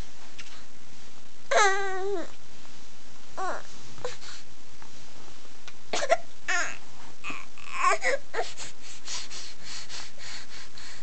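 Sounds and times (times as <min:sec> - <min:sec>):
baby breathing sounds: 0:07.9 - 0:11.0.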